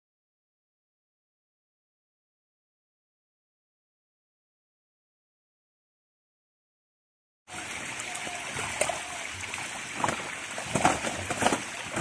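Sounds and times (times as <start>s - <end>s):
fish thrashing and splashing: 8.4s - 12.0s.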